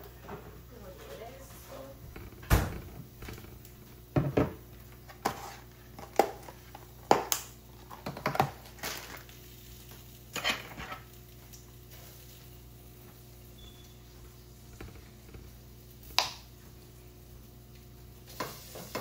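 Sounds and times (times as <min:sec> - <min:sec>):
plastic packaging clicks and crackles: 0:06.0 - 0:10.1.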